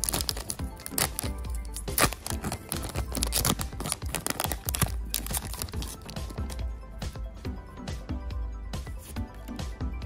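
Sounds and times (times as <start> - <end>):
foil pack crinkling and tearing: 0.0 - 6.6
background music: 0.0 - 10.0.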